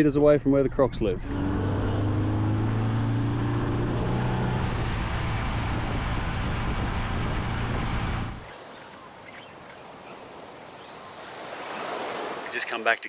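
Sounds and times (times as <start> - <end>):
wind on microphone: 3.9 - 8.5
water rushing past hull: 4.5 - 13.0.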